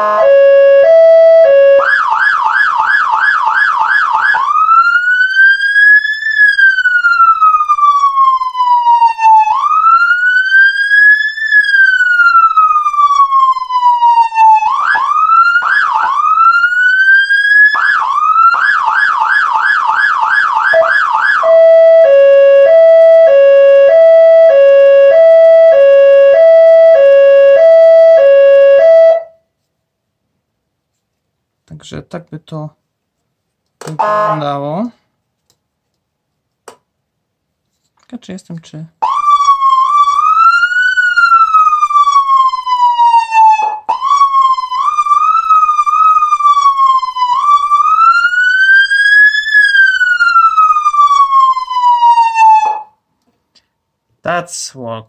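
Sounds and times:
electronic siren cycling tones: 0.0s - 29.4s, 33.9s - 34.6s, 39.0s - 52.9s.

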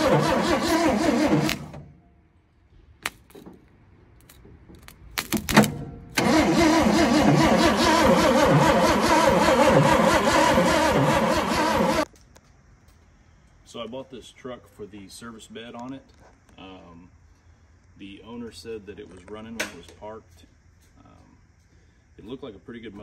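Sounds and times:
engine running: 0.0s - 2.0s, 6.0s - 12.1s.

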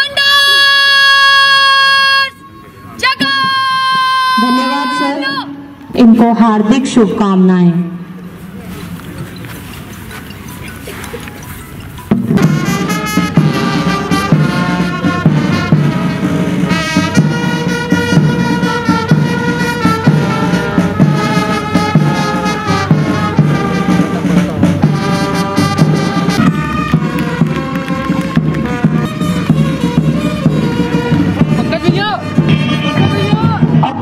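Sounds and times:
brass band playing a march: 0.0s - 5.5s, 12.1s - 34.0s
steady drum beat: 12.1s - 34.0s.

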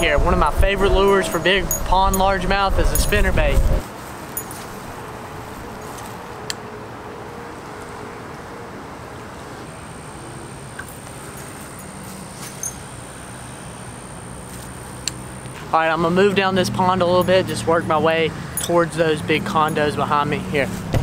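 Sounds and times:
wind noise on microphone: 0.0s - 3.8s.

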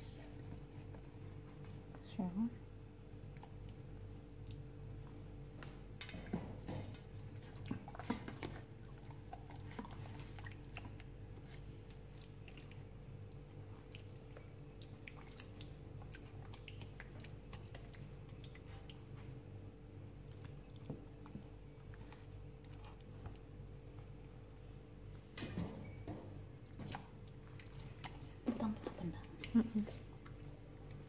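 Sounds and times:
hands squishing marinade on chicken: 6.0s - 23.5s, 26.7s - 31.0s.

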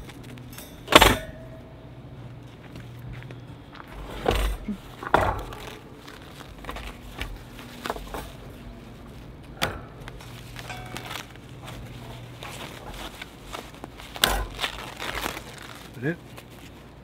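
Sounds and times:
plastic wrapping rustling: 0.0s - 0.5s, 4.6s - 17.0s
low steady hum: 0.0s - 17.0s
metal parts clicking: 9.4s - 16.0s.

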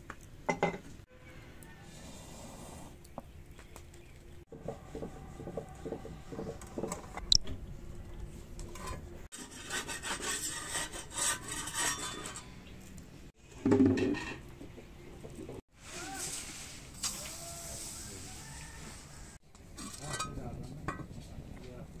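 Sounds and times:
metal spatula scraping on tawa: 8.7s - 12.6s.

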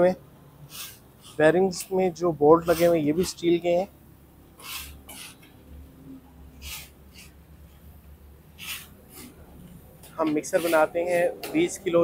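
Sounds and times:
short hissing sounds: 0.6s - 1.5s, 4.6s - 5.4s, 6.6s - 7.4s, 8.6s - 9.3s.

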